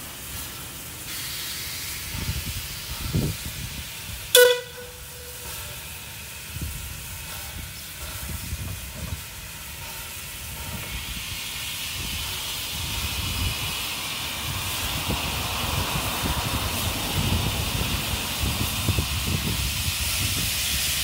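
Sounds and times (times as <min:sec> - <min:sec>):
steam locomotive hissing steam: 0:00.0 - 0:21.0
steam whistle: 0:04.3 - 0:05.8.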